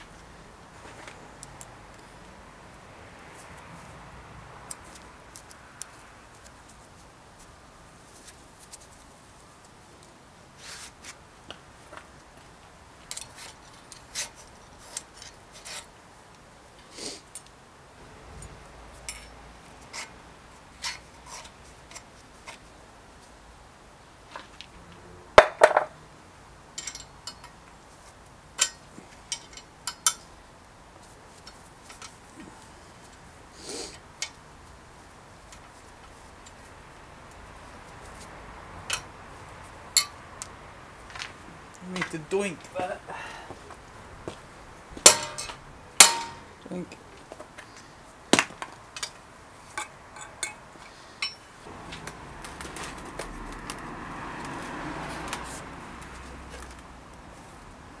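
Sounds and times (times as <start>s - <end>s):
metal clinks and knocks: 19.0s - 19.4s, 26.8s - 27.6s, 45.0s - 46.5s, 49.0s - 52.1s
loud metal clank and rattle: 45.1s - 46.5s.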